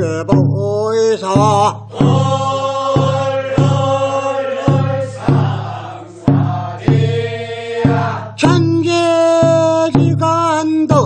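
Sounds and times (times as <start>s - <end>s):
steady struck beat: 1.4s - 10.2s
group singing chant-like notes: 1.8s - 8.6s.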